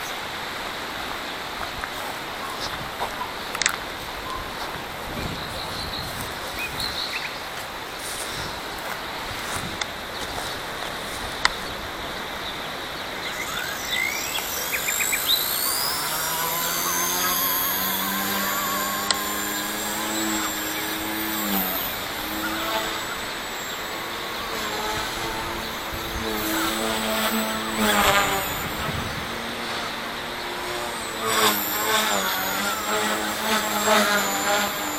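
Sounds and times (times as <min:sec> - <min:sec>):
model helicopter motor whine: 0:00.0 - 0:34.9
rotor humming: 0:08.1 - 0:34.9.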